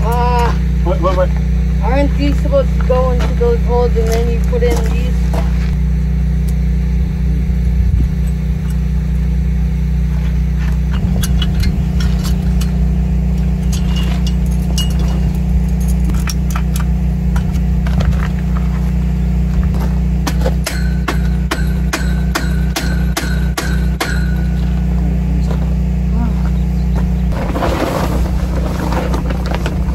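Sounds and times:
low mechanical hum: 0.0s - 29.9s.

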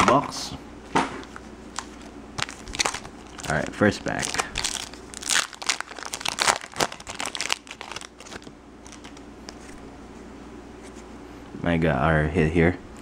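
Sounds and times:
plastic wrapper crinkling: 1.2s - 9.8s.

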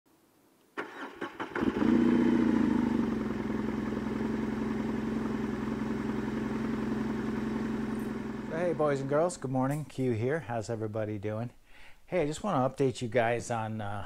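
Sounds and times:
motorcycle engine starting and idling: 0.8s - 9.3s.

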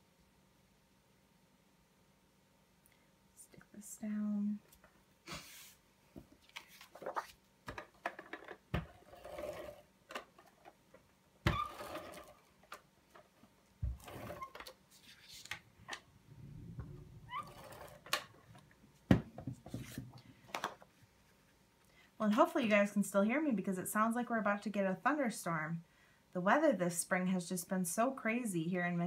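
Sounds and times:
paper rustling and sliding: 6.4s - 7.4s, 14.0s - 16.0s, 19.6s - 20.2s
sharp thumps: 15.6s - 20.2s.

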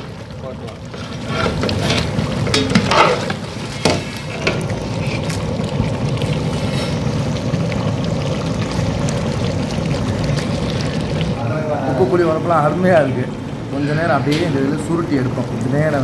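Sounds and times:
stove rumble: 0.0s - 16.0s
metal ladle scraping cooking pot: 0.9s - 5.4s.

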